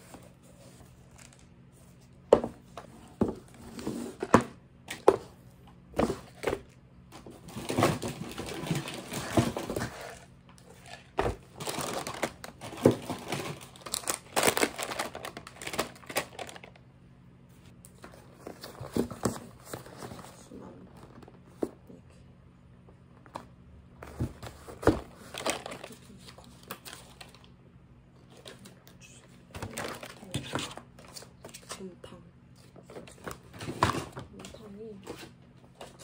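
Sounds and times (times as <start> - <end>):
plastic packaging crinkling: 7.5 - 16.8, 25.2 - 27.5.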